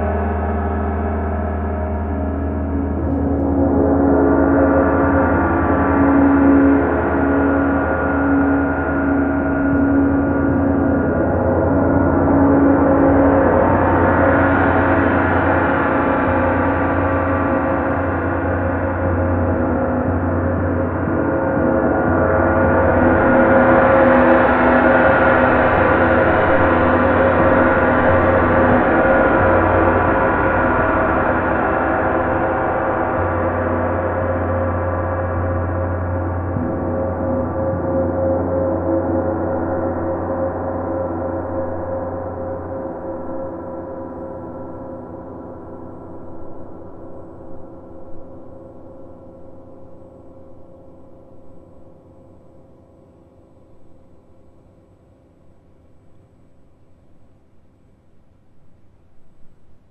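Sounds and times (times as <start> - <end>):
overlapping gong tones: 0.0 - 41.9.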